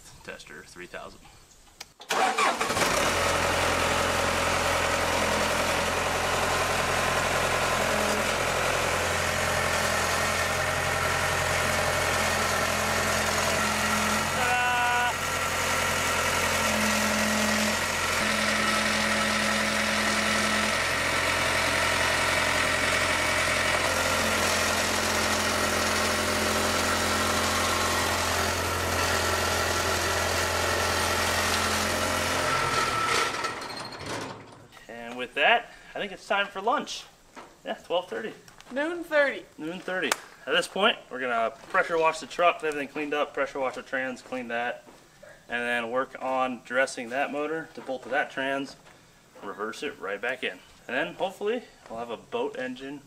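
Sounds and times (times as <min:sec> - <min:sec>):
loader engine idling: 0:02.1 - 0:34.2
higher machine tone: 0:10.2 - 0:24.8.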